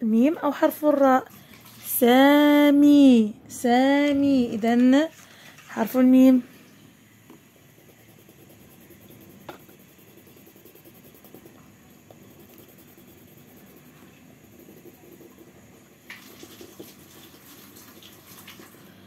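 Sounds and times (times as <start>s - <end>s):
pencil scratching on paper: 7.7s - 18.0s.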